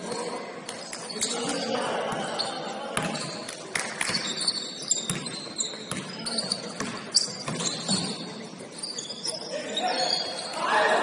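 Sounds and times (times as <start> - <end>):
shoe squeaks: 0.0 - 10.7
gym hall background: 0.0 - 11.0
basketball bouncing on gym floor: 3.0 - 8.2.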